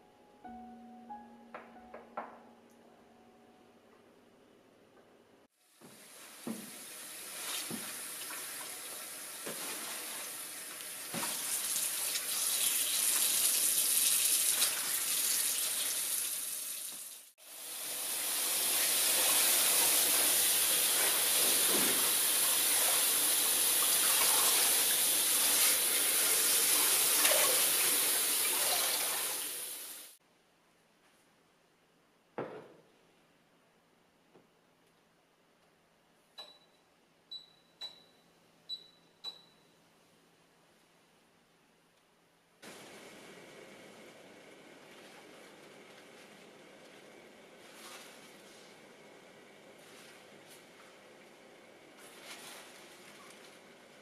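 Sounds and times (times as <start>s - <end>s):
tap water running into sink: 5.8s - 17.2s, 17.9s - 30.2s.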